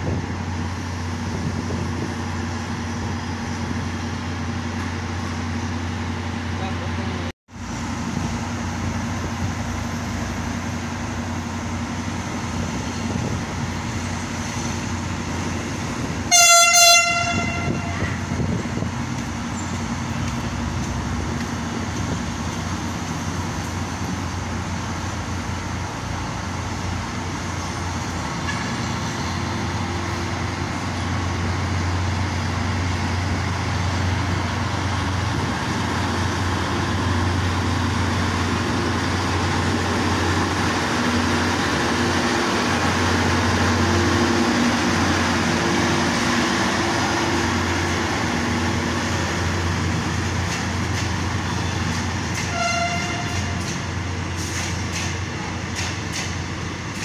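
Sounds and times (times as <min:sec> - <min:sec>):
diesel locomotive engine humming: 0:00.0 - 0:57.0
short train horn blast: 0:16.3 - 0:18.2, 0:52.3 - 0:53.7.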